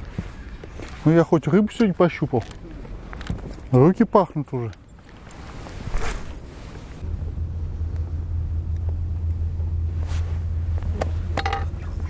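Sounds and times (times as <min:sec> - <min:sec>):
wind rumbling on microphone: 0:04.8 - 0:12.0.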